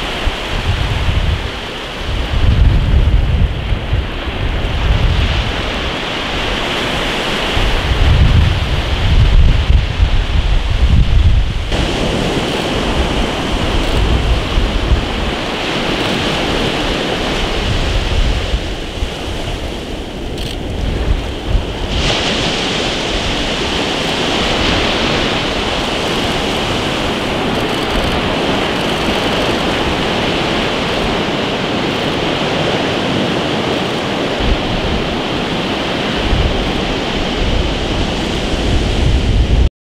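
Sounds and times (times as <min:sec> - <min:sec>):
surf washing up a beach: 0:00.0 - 0:39.7
wind buffeting microphone: 0:00.0 - 0:39.7.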